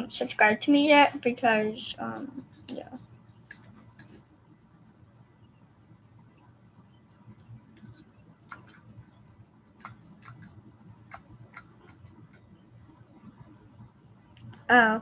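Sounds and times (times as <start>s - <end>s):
low room hum: 0.0s - 15.0s
faint clicks and ticks: 2.2s - 4.2s, 6.2s - 13.5s.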